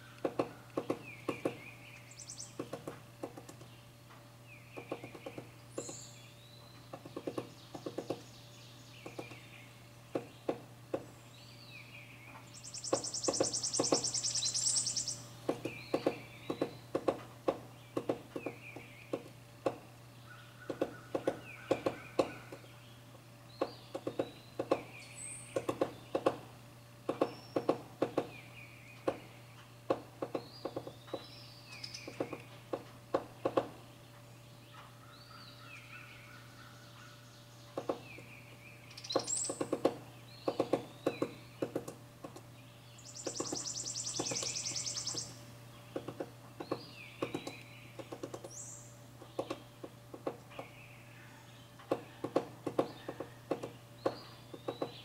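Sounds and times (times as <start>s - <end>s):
woodpecker pecking wood: 0.0s - 3.8s, 4.7s - 6.1s, 6.8s - 8.3s, 9.0s - 11.1s, 12.8s - 20.0s, 20.6s - 22.8s, 23.5s - 33.9s, 37.7s - 38.4s, 39.0s - 42.6s, 43.2s - 50.8s, 51.8s - 55.0s
birds chirping: 0.0s - 55.0s.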